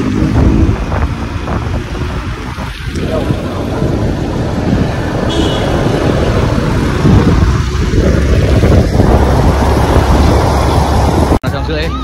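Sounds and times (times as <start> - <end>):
wind buffeting microphone: 0.0 - 11.5
road noise: 0.0 - 12.0.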